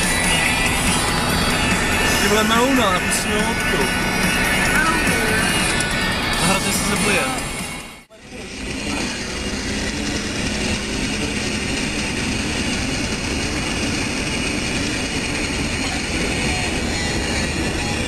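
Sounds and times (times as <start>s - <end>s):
car engine and tyre rumble: 0.0s - 18.0s.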